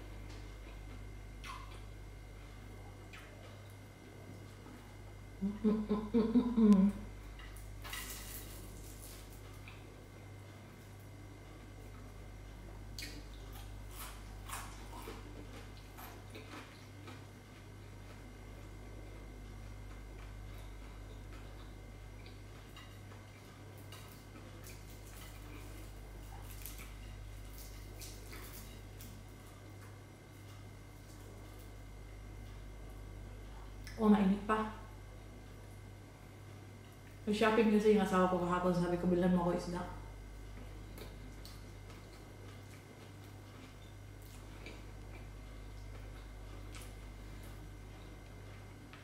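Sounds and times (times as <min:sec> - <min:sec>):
low hum: 0:00.0 - 0:49.0
chewing and finger smacks: 0:00.3 - 0:01.9, 0:03.0 - 0:03.8, 0:12.9 - 0:17.3, 0:40.9 - 0:49.0
chewing: 0:07.3 - 0:12.2, 0:12.9 - 0:32.7, 0:40.6 - 0:49.0.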